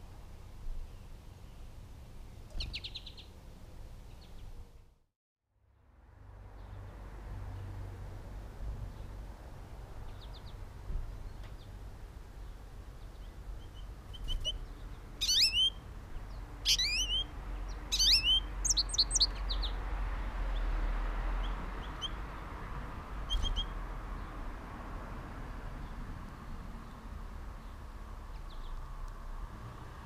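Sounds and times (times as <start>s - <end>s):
songbirds chirping and singing: 2.4s - 3.4s, 10.0s - 19.8s.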